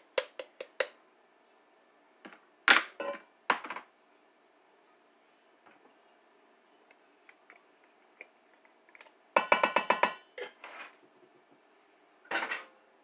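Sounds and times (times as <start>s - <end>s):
glass jar knocking against wooden spoon: 9.4s - 10.2s.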